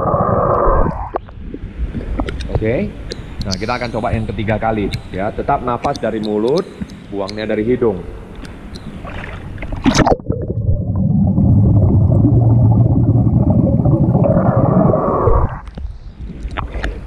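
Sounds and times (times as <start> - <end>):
underwater bubbling rumble: 0.0 - 2.6, 9.1 - 16.7.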